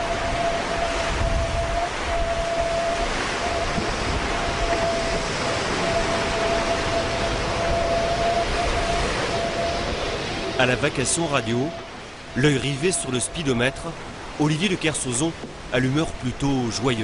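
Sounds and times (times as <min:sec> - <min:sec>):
thin high whistle: 0:00.0 - 0:03.8, 0:05.8 - 0:13.8
wind and sea water rushing: 0:00.0 - 0:17.0.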